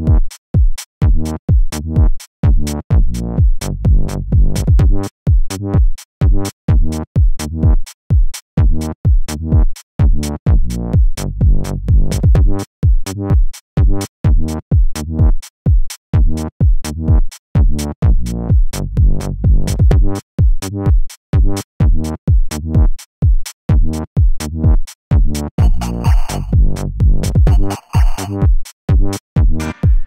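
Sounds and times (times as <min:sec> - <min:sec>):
electronic dance music: 0:25.6 - 0:26.6, 0:27.3 - 0:28.5, 0:29.5 - 0:30.0.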